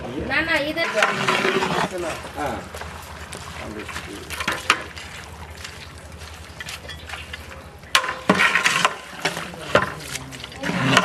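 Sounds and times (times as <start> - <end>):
ladle stirring food in a pot: 0.5 - 11.0.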